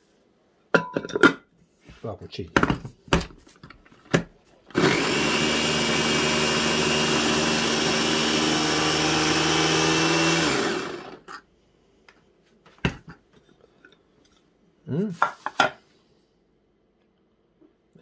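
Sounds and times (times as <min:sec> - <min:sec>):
food chopper motor running: 0:04.7 - 0:11.3.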